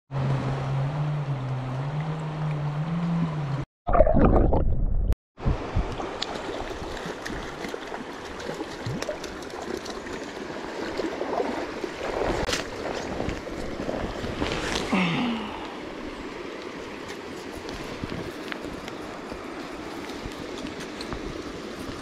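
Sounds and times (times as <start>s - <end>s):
wind on microphone: 4.5s - 7.5s, 11.2s - 14.9s, 17.5s - 22.0s
stream water splashing: 5.6s - 22.0s.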